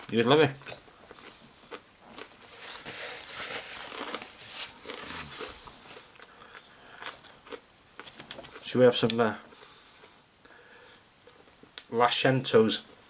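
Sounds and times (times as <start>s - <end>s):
chewing crispy food: 0.6s - 10.2s
paper towel rustling and crumpling: 2.5s - 5.6s.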